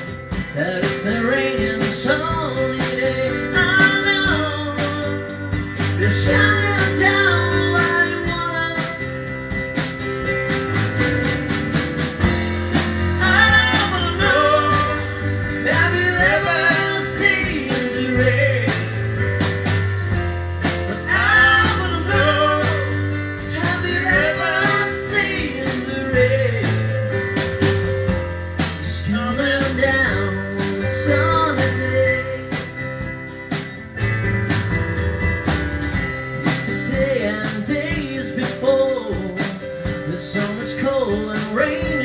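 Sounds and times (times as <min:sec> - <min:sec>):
male vocals singing: 0:00.0 - 0:09.3, 0:13.2 - 0:19.3, 0:20.9 - 0:27.2, 0:28.8 - 0:32.9, 0:36.5 - 0:42.0
bass notes: 0:00.0 - 0:42.0
drum kit cymbals: 0:00.0 - 0:42.0
electric keyboard chords: 0:00.0 - 0:42.0.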